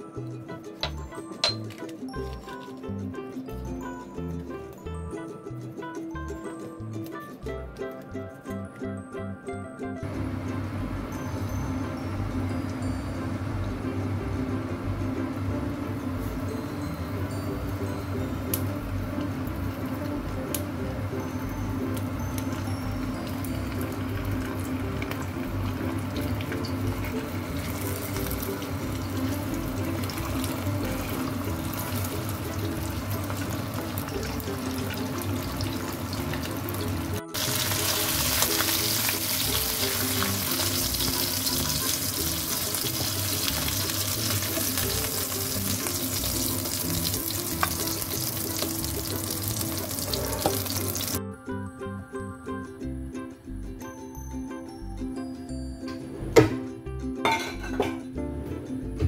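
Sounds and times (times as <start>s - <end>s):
light background music: 0.0s - 59.0s
fish sizzling in hot oil: 21.8s - 51.2s.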